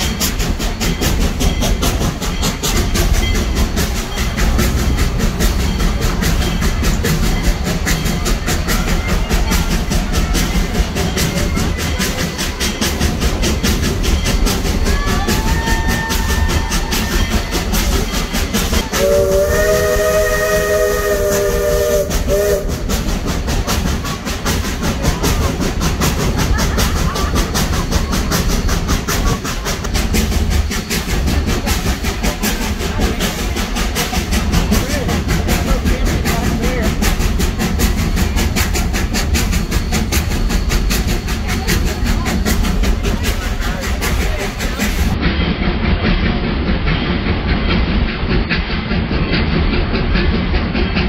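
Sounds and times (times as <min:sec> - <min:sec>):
train rumbling and rattling: 0:00.0 - 0:51.0
steam locomotive chime whistle: 0:14.1 - 0:23.2.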